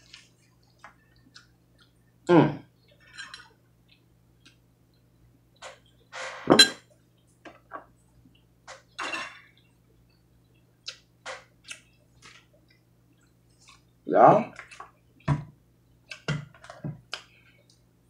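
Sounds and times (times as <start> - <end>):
faint low hum: 0.0 - 18.0
dishes and cutlery clinking: 3.0 - 3.5, 5.6 - 6.9, 8.7 - 9.6.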